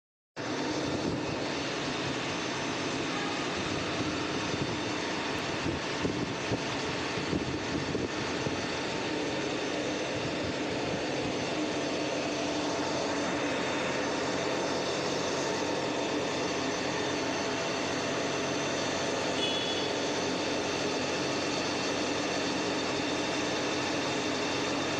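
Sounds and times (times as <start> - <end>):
wire winding machines humming: 0.4 - 24.9.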